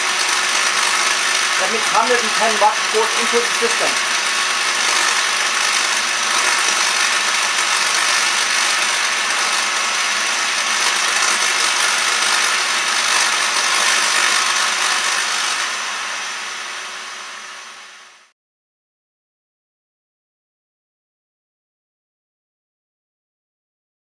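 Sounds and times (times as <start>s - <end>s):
vacuum cleaner running: 0.0s - 18.3s
electric sparks crackling: 1.1s - 9.0s.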